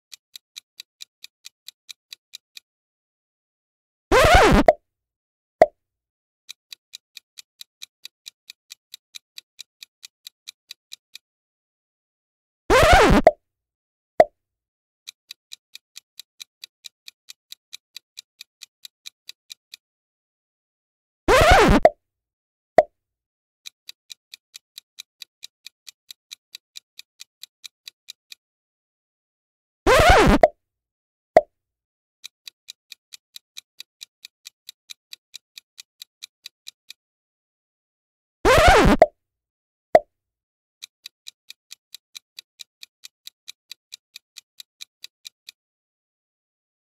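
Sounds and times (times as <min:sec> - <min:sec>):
clock-like timer ticking: 0:00.1 - 0:02.7, 0:04.1 - 0:04.8, 0:06.5 - 0:11.2, 0:12.8 - 0:13.4, 0:15.1 - 0:19.8, 0:21.3 - 0:22.0, 0:23.6 - 0:28.4, 0:29.9 - 0:30.6, 0:32.2 - 0:37.0, 0:38.5 - 0:39.2, 0:40.8 - 0:45.6
cartoon plop: 0:04.1 - 0:04.8, 0:12.7 - 0:13.4, 0:21.3 - 0:21.9, 0:29.9 - 0:30.5, 0:38.5 - 0:39.1
clock ticking: 0:04.1 - 0:04.8, 0:12.8 - 0:13.4, 0:21.3 - 0:22.0, 0:29.9 - 0:30.5, 0:32.4 - 0:37.0, 0:38.5 - 0:39.2, 0:40.8 - 0:45.6
pop sound effect: 0:04.1 - 0:04.8, 0:12.7 - 0:13.4, 0:21.3 - 0:22.0, 0:29.9 - 0:30.5, 0:38.5 - 0:39.1.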